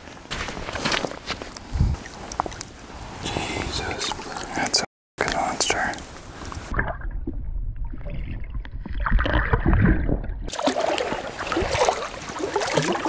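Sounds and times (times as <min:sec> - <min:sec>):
water splashing: 0:00.4 - 0:13.0
muffled underwater rumbling: 0:06.5 - 0:13.0.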